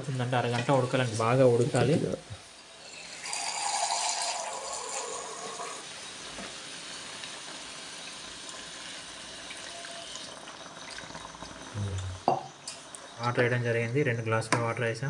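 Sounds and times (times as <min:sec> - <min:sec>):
water pouring into a pot: 0:01.5 - 0:13.4.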